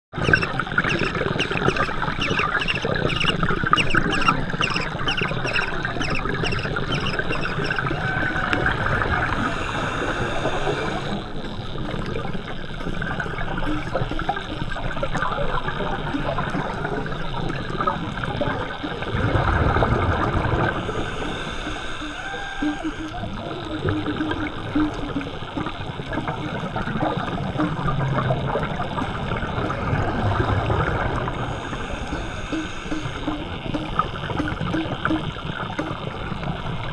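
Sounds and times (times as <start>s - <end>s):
regular ticking: 0.1s - 11.9s, 31.2s - 36.2s
underwater bubbling: 0.1s - 36.9s.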